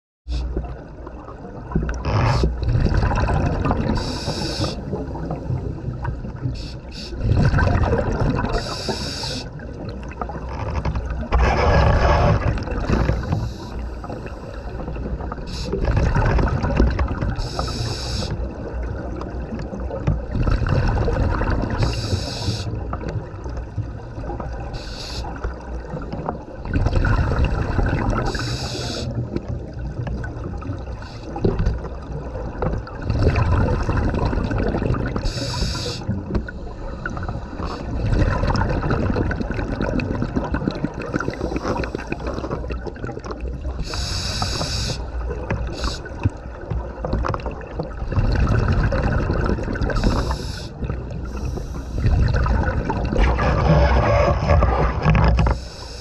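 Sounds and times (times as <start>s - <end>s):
exhaled bubbles gurgling: 0.3s - 56.0s
regulator inhalation hiss: 4.0s - 4.8s, 6.6s - 7.2s, 8.6s - 9.5s, 15.5s - 15.8s, 17.4s - 18.4s, 21.8s - 22.7s, 24.8s - 25.3s, 28.3s - 29.1s, 35.2s - 36.1s, 43.8s - 45.0s, 45.7s - 46.1s, 50.0s - 52.0s, 55.6s - 56.0s.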